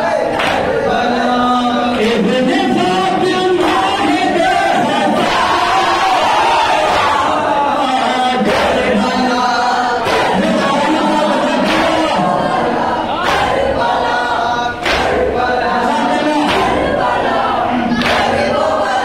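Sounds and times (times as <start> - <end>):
man reciting over a microphone: 0.0 - 6.0, 7.0 - 13.2, 15.4 - 16.9
crowd of men chanting along: 0.0 - 19.0.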